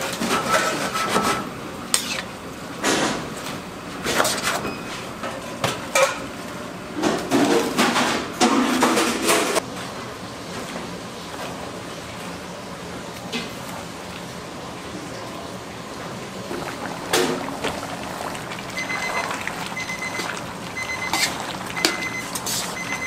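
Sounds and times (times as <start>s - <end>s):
metal spoon scraping a frying pan: 21.0s - 22.9s.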